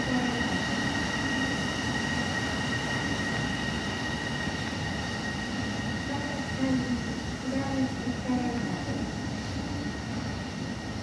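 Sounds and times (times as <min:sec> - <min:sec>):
train rumble: 0:00.0 - 0:11.0.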